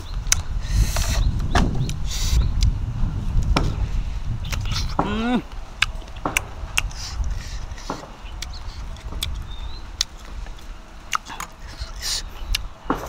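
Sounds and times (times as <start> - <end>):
crunchy chewing of raw mango: 4.4 - 13.0.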